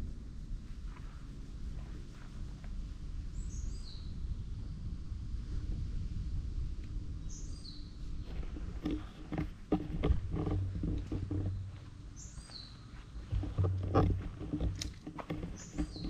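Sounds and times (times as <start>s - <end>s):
soft handling knocks: 13.1s - 16.0s.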